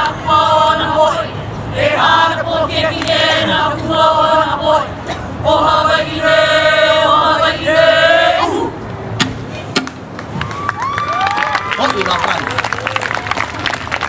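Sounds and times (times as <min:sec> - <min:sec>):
group chanting in unison: 0:00.0 - 0:08.8.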